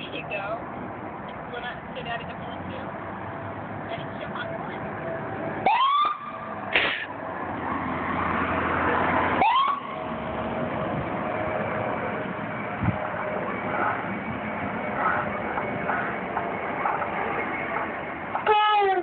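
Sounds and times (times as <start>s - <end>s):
electronic siren whoop: 5.6s - 6.6s, 9.4s - 10.1s
harsh siren blast: 5.6s - 6.7s, 7.7s - 19.0s.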